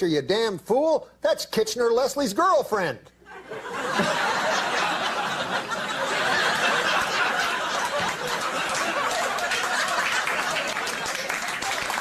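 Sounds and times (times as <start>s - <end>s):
studio audience laughing: 3.3s - 12.0s.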